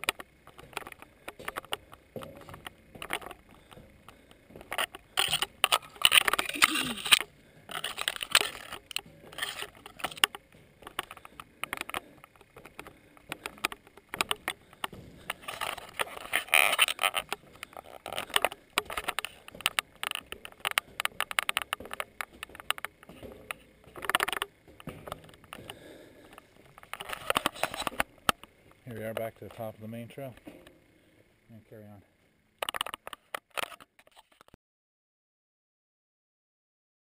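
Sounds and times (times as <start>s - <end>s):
footsteps on iron staircase: 0.0s - 28.8s.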